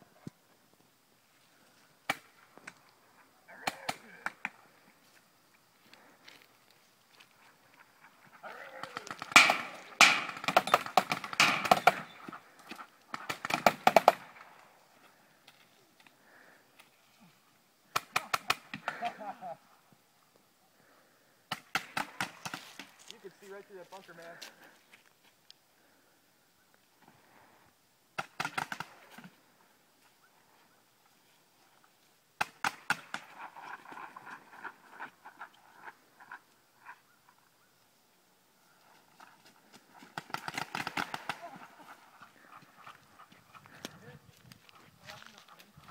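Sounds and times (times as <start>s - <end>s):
paintball markers firing: 8.8s - 12.4s, 13.1s - 14.3s.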